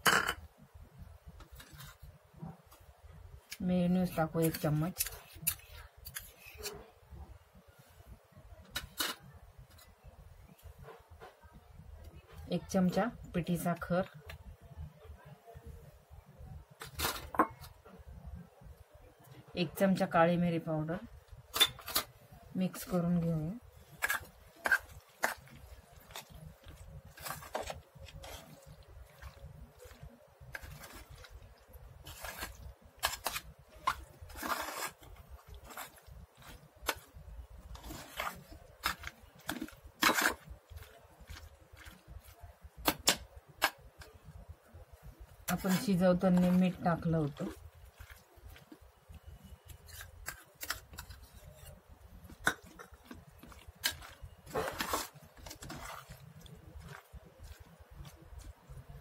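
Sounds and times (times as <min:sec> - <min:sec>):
salad stirred in steel bowl: 0:21.3 - 0:44.4, 0:45.0 - 0:59.0.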